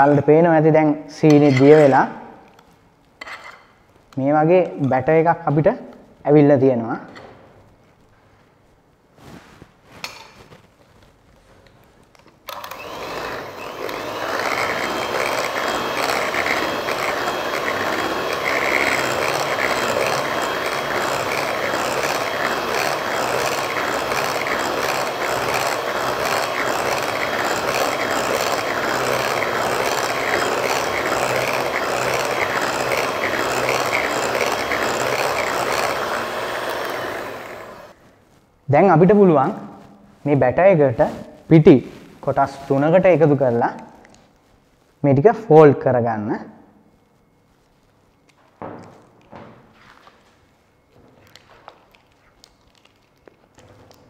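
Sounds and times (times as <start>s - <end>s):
electric hand mixer whining: 12.5s - 38.0s.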